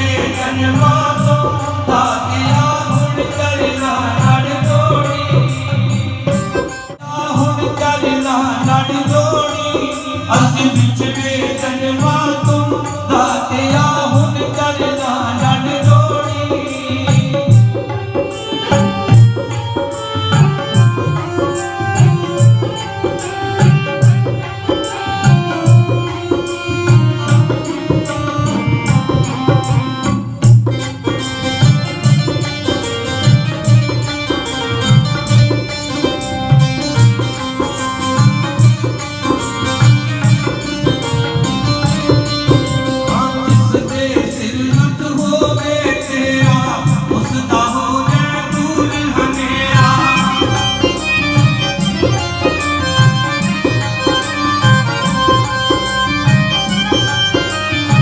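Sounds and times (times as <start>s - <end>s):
tabla drum rhythm: 0.0s - 58.0s
melodic instruments: 16.6s - 58.0s.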